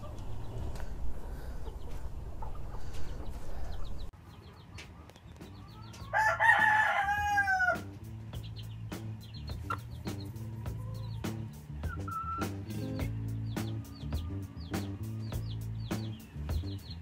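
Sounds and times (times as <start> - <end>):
hens clucking softly: 0.0 - 6.1
cockerel crowing: 5.7 - 7.9.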